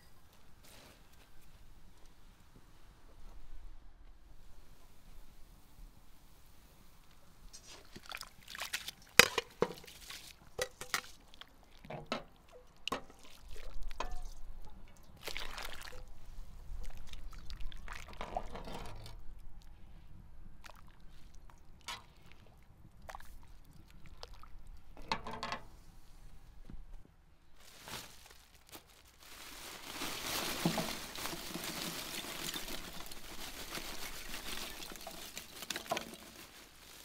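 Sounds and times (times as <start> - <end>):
water splashing and sloshing: 7.6 - 19.8, 20.5 - 25.0, 29.2 - 37.0
rice poured into boiling water: 29.8 - 36.8.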